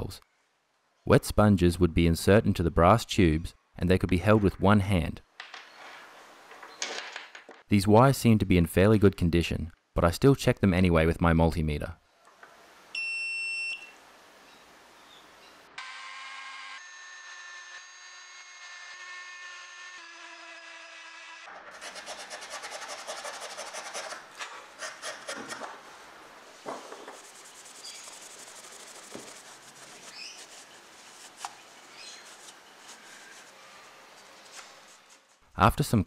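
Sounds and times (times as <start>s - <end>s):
cloth rubbing brass tubes: 21.9s - 35.5s.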